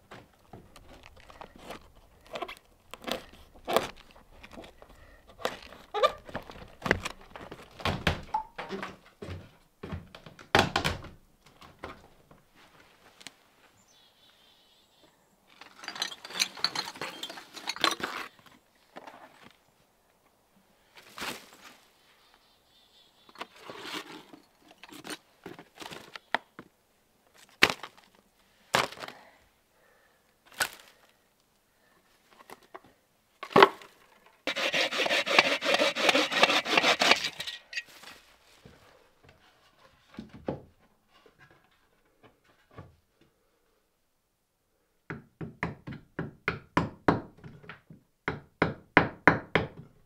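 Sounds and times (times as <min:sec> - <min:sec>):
wood debris knocking and clattering: 0:15.6 - 0:18.4
rasping scraping: 0:34.5 - 0:37.6.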